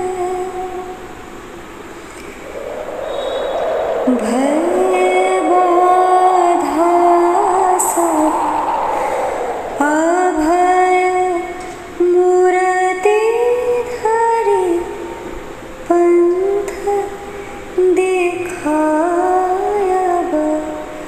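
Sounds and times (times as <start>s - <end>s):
woman singing slow melody: 4.1s - 8.4s.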